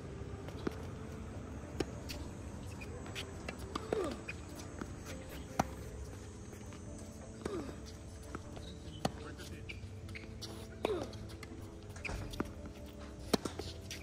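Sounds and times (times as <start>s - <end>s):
tennis ball bouncing: 0.4s - 9.5s, 10.1s - 14.0s
short falling squeak: 12.0s - 12.4s
racket striking tennis ball: 13.2s - 14.0s.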